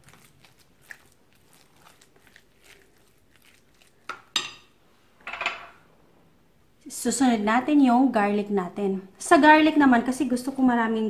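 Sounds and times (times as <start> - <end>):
hands squishing minced meat: 0.0 - 4.4.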